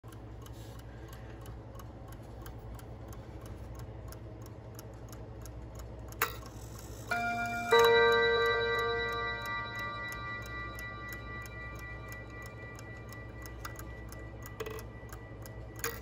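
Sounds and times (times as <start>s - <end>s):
mantel clock ticking: 0.0s - 16.0s
clock mechanism click: 0.1s - 16.0s
clock chime on gong rods: 7.1s - 16.0s.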